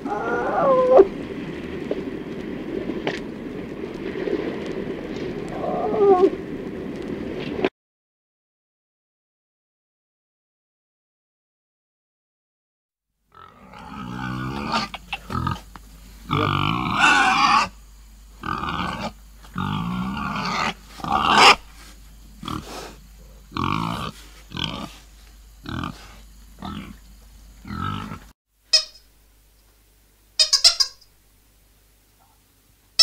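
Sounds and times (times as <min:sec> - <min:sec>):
pigs grunting and squealing: 0:00.0 - 0:01.1, 0:13.3 - 0:15.7, 0:16.3 - 0:17.8, 0:18.4 - 0:21.7, 0:22.4 - 0:25.0, 0:25.6 - 0:27.0, 0:27.6 - 0:28.3
high squeaks: 0:28.7 - 0:29.1, 0:30.4 - 0:31.1.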